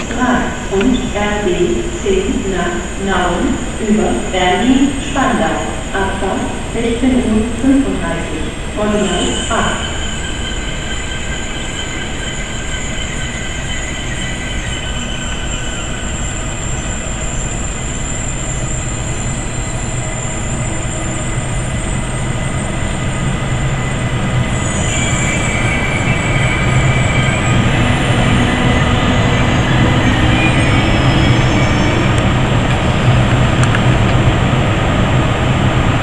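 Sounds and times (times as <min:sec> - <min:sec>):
train rumbling past: 0:00.0 - 0:36.0
high-pitched tones: 0:07.6 - 0:17.8, 0:24.5 - 0:33.3.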